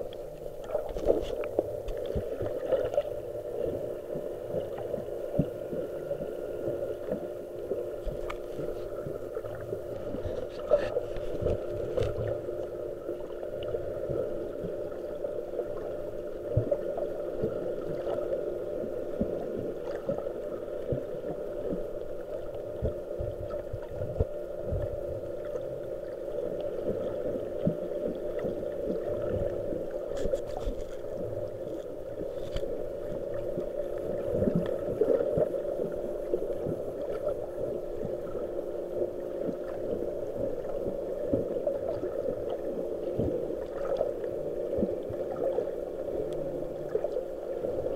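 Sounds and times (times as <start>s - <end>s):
faint constant tones: 0.0s - 47.9s
underwater low hum: 0.0s - 47.9s.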